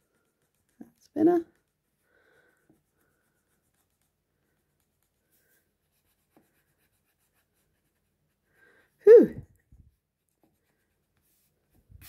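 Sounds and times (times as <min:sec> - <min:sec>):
eraser rubbing on paper: 0:02.6 - 0:08.4.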